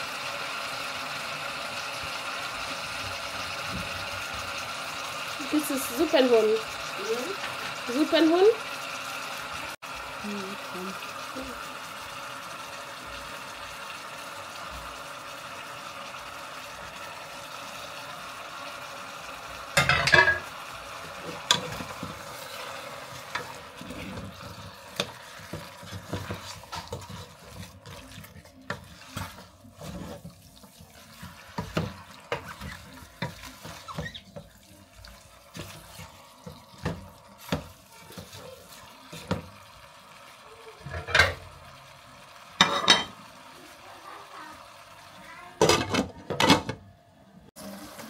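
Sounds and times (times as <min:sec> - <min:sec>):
meat sizzling in pot: 0:00.0 - 0:46.5, 0:47.5 - 0:48.0
wooden spoon scraping pot: 0:21.2 - 0:39.4.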